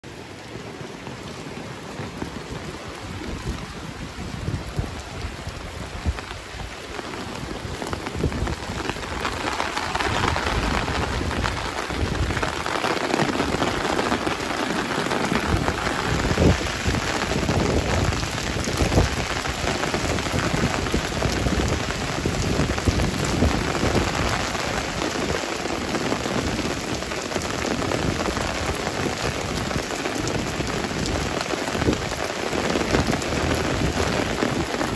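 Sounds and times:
heavy rain on wet pavement: 0.0s - 34.9s
low rumbling gusts: 1.7s - 32.2s.

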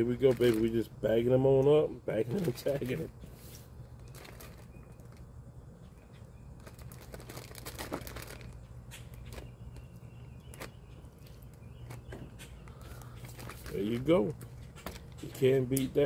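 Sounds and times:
plastic bag crinkling: 0.0s - 0.9s, 2.2s - 3.1s, 3.8s - 5.3s, 6.6s - 12.2s, 12.8s - 15.7s
steady low hum: 0.0s - 16.0s.

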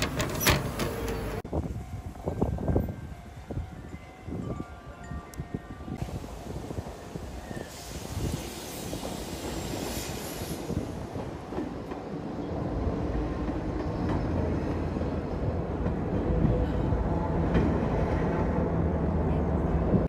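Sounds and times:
train wheels rumbling on rails: 0.0s - 1.8s, 6.0s - 20.0s.

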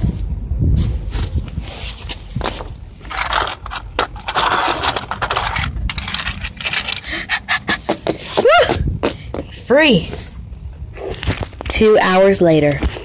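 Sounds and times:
toy figures scraping on paving: 1.8s - 7.2s.

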